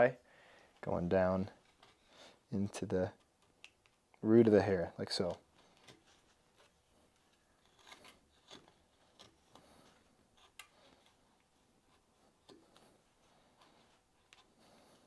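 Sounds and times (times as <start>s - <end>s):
gouge scraping wood: 7.5s - 11.2s.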